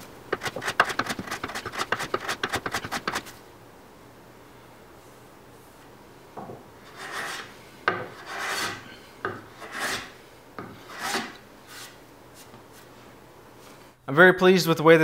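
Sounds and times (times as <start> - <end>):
hand tool scraping wood: 0.3 - 3.4, 6.8 - 12.0.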